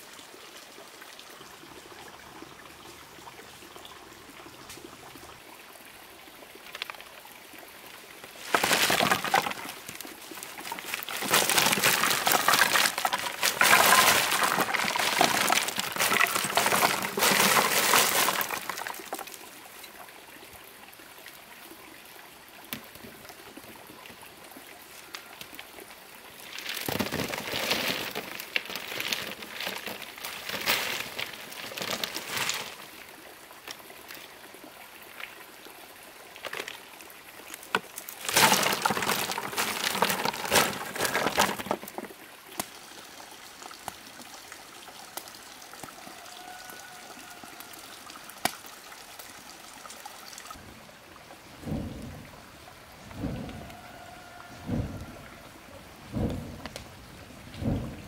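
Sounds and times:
ore lumps clattering onto wood: 8.4 - 19.3, 26.5 - 32.8, 37.7 - 42.1.

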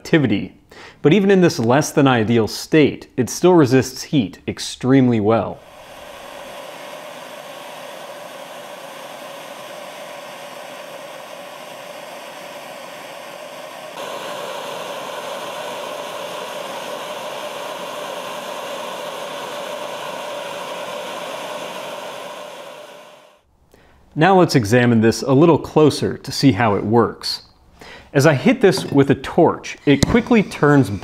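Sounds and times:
hand torch hissing: 5.6 - 23.5, 28.7 - 31.0.

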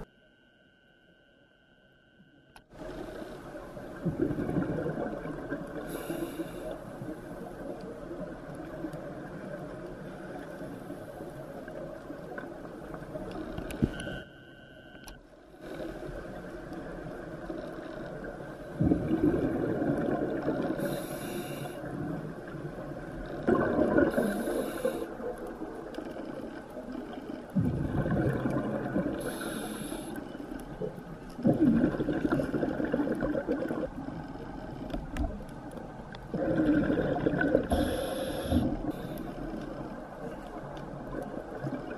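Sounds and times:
regulator inhalation hiss: 5.9 - 6.8, 20.8 - 21.8, 24.2 - 25.2, 29.2 - 30.2, 37.7 - 39.4
low underwater rumble: 21.9 - 29.6.

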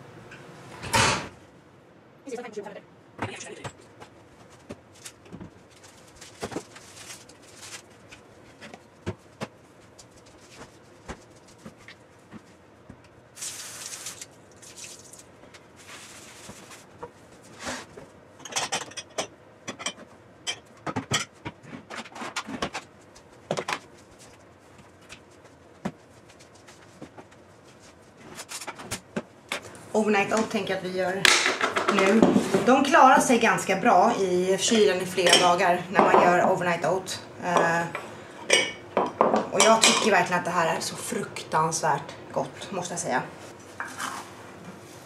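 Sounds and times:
glass containers clinking: 38.4 - 40.1.

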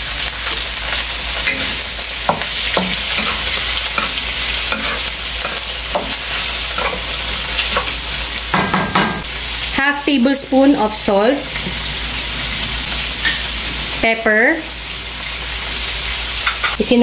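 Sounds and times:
meat sizzling in hot oil: 0.0 - 17.0
wooden spatula scraping a pan: 1.5 - 8.0.

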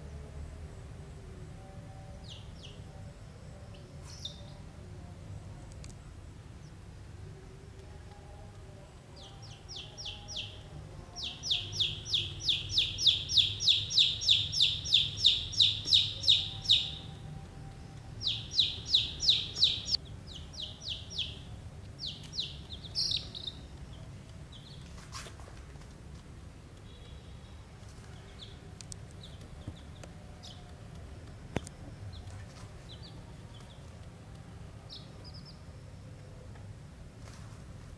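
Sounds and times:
chicks peeping: 3.7 - 4.7, 9.2 - 17.3, 17.9 - 25.9, 27.8 - 31.0, 31.6 - 34.2, 34.8 - 35.7.

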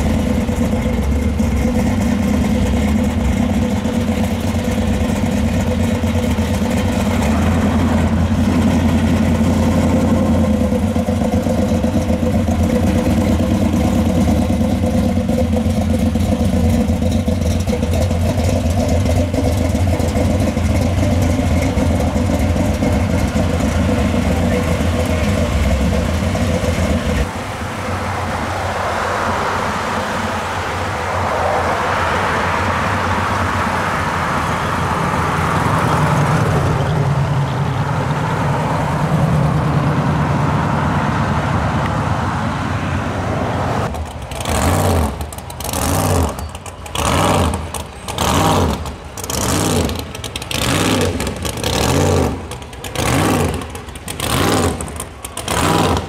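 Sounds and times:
car engine deep low note: 0.0 - 43.8
cars driving by on road: 0.0 - 56.0.

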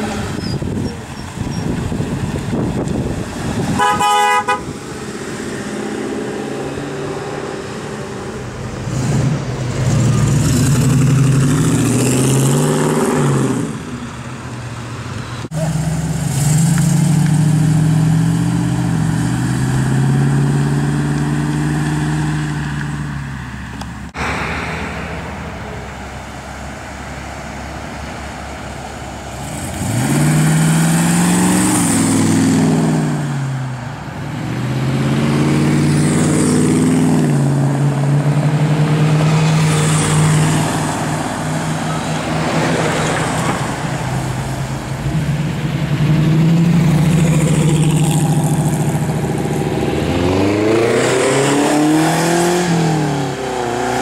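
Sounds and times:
cars driving past: 0.0 - 54.0
short car horn toot: 3.8 - 4.7.

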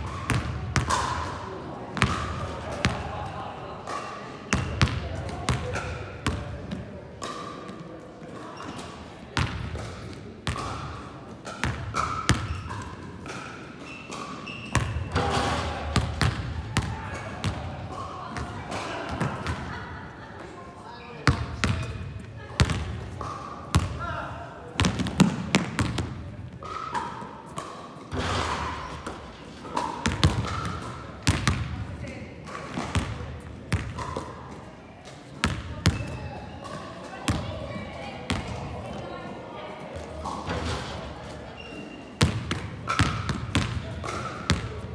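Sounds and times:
basketball bouncing on court: 0.0 - 1.2, 2.0 - 3.0, 4.5 - 7.4, 9.4 - 13.4, 14.8 - 15.3, 15.9 - 18.5, 22.6 - 24.0, 24.8 - 26.9, 30.0 - 31.8, 32.6 - 34.3, 35.4 - 36.2, 37.3 - 37.5, 42.2 - 44.9
sneakers squeaking on court: 4.5 - 7.8, 8.4 - 10.9, 11.5 - 19.6, 35.4 - 37.4, 41.5 - 44.9
shoe squeaks: 12.4 - 12.9, 13.8 - 15.2, 41.6 - 42.2
basketballs bouncing on wooden floor: 24.8 - 26.2, 30.0 - 31.8, 32.7 - 34.2, 42.2 - 44.8.

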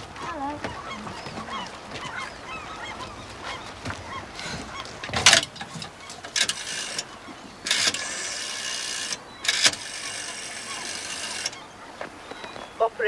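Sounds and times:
rotary dial whirring back: 6.3 - 11.6.

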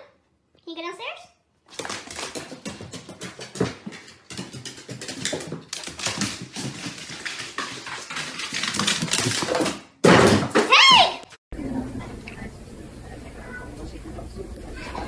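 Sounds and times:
dog claws clicking on stairs: 1.7 - 10.4.

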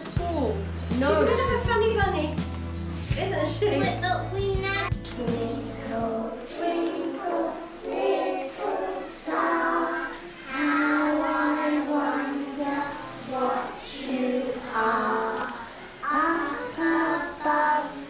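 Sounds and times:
children singing in unison: 5.0 - 18.0.

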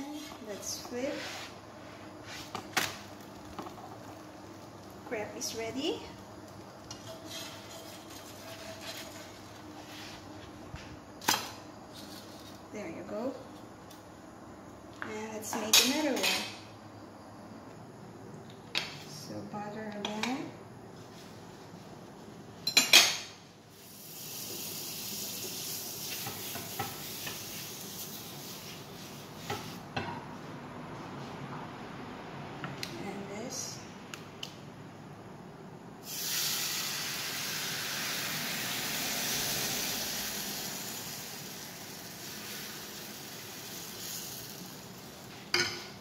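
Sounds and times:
faint steady hum: 0.0 - 46.0
butter sizzling in a pan: 23.7 - 28.8, 36.0 - 45.4.

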